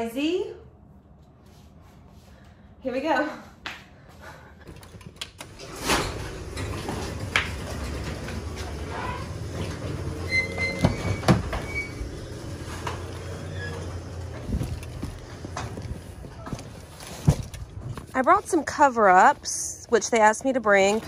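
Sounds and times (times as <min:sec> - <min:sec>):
garage door opener rumbling: 0:05.3 - 0:19.2
garage door clunks: 0:05.4 - 0:16.5.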